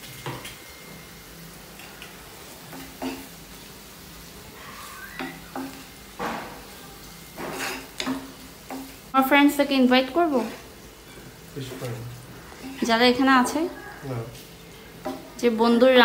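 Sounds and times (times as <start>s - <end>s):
food sizzling in hot oil: 0.0s - 16.0s
utensil scraping against pan: 7.3s - 8.9s.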